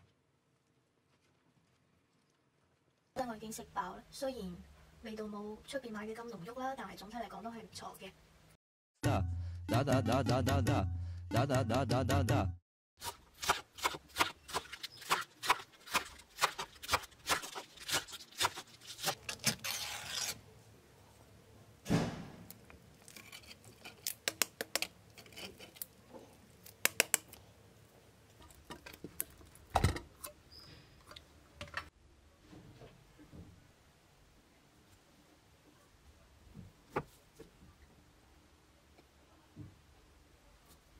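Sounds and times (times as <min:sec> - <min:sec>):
knife chopping lettuce on board: 0:13.0 - 0:19.2.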